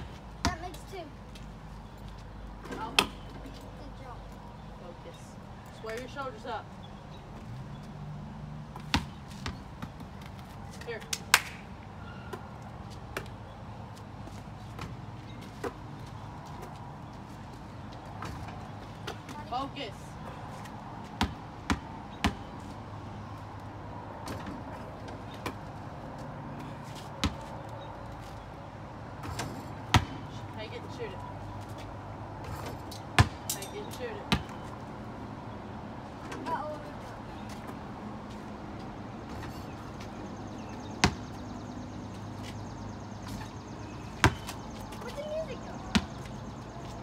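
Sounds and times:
basketball bouncing on concrete: 0.1s - 0.8s, 8.8s - 10.4s, 21.0s - 22.6s, 27.2s - 27.6s, 29.2s - 30.4s, 33.2s - 34.7s, 40.5s - 41.5s, 42.5s - 46.6s
basketball thudding on hard surface: 29.2s - 30.2s, 33.2s - 33.4s, 41.0s - 41.3s.

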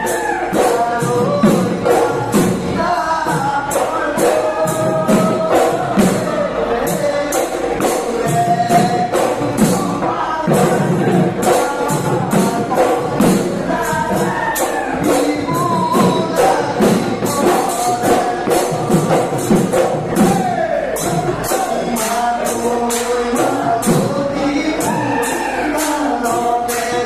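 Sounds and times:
dhol drums beating: 0.0s - 27.0s.

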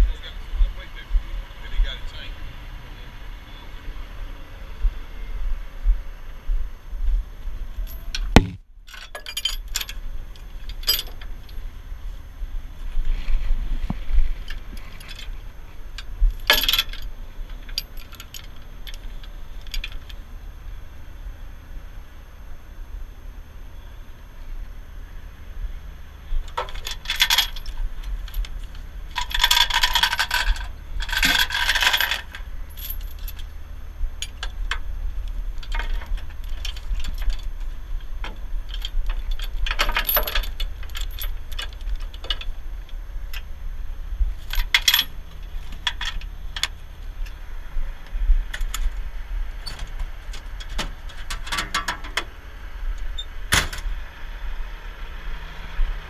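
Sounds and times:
chains and hooks rattling: 7.9s - 10.0s, 16.4s - 19.0s, 29.2s - 33.5s, 38.7s - 42.5s, 44.4s - 46.2s.

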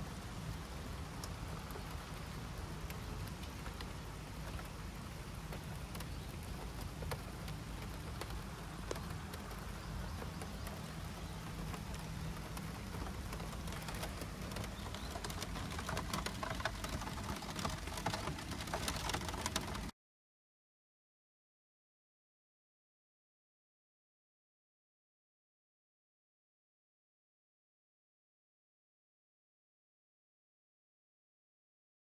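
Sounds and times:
rain pattering on plastic canopy: 0.0s - 20.0s.

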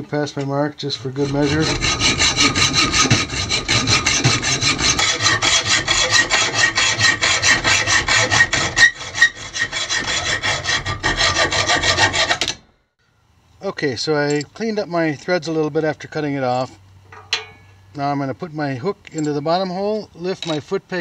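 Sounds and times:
hacksaw rasping on metal: 0.8s - 12.6s.

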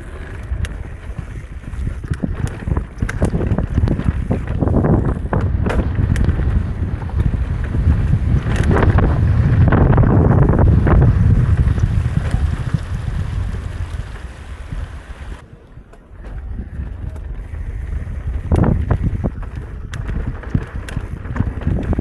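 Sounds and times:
mountain bike rumbling on dirt trail: 0.0s - 15.4s, 16.1s - 22.0s
bike clicking and rattling: 0.0s - 22.0s
wind buffeting the microphone: 0.0s - 22.0s.

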